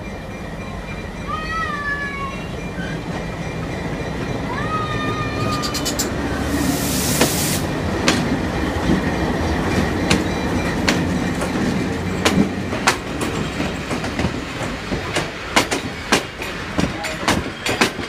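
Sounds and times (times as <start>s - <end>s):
diesel locomotive engine passing: 0.0s - 18.0s
train wheels clicking over rail joints: 2.6s - 6.3s, 7.1s - 18.0s
short hiss burst: 6.6s - 7.7s.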